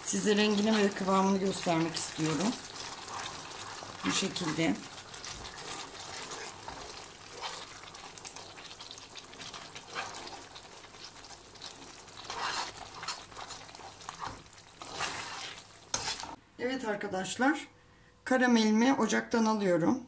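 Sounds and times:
caramel sauce bubbling in a pan: 0.0s - 16.4s
metal spoon scraping a pan: 2.2s - 16.4s.

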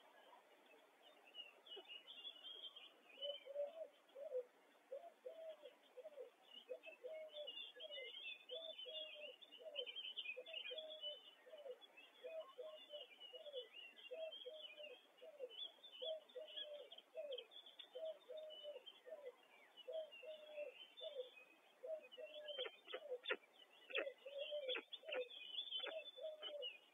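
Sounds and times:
small birds chirping: 0.0s - 26.9s
bird cooing: 3.1s - 26.9s.

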